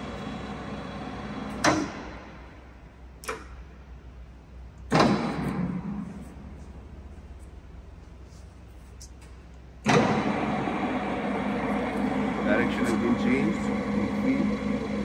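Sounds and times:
lathe running hum: 0.0s - 1.7s, 9.9s - 15.0s.

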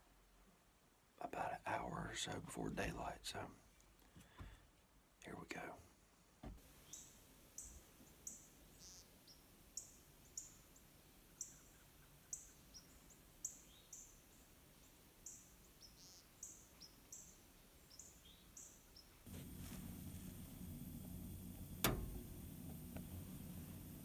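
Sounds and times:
bird chirping: 6.7s - 19.3s
low hum: 19.3s - 24.0s.

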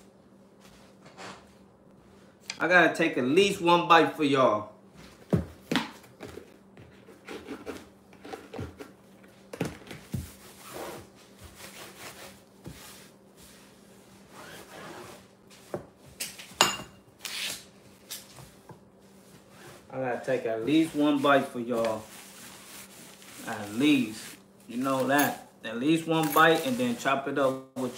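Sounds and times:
wipe rubbing on countertop: 10.1s - 15.8s, 17.4s - 24.9s.

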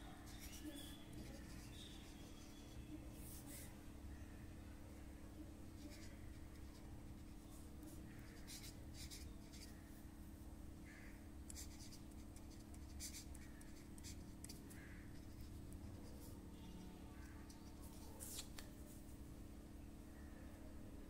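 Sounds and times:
steady low hum: 0.0s - 21.0s
marker pen scratching on paper: 0.3s - 3.7s, 5.7s - 9.8s, 11.5s - 16.4s, 17.2s - 18.6s.

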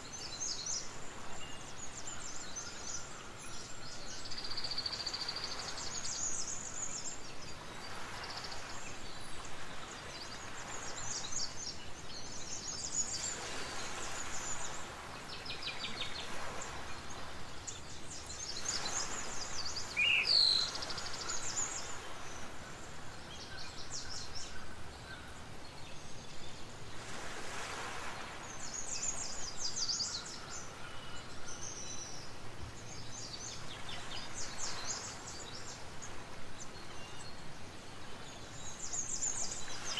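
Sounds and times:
background hiss: 0.0s - 39.9s.

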